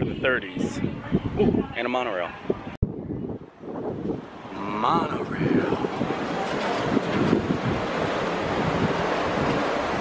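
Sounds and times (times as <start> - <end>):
wind buffeting microphone: 0.0 - 10.0
monorail train passing: 4.1 - 10.0.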